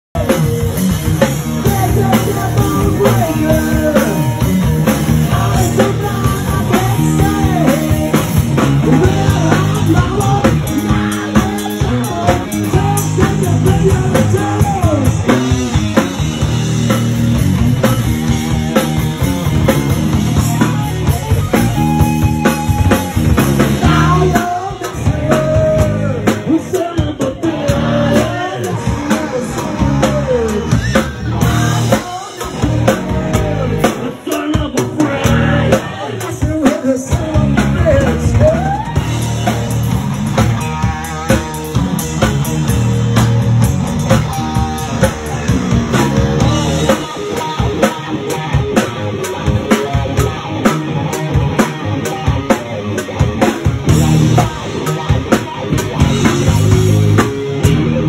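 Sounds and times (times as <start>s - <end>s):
drum kit: 0.1s - 58.0s
electric guitar: 0.1s - 58.0s
man singing: 1.4s - 15.7s, 21.8s - 39.6s, 44.1s - 48.5s.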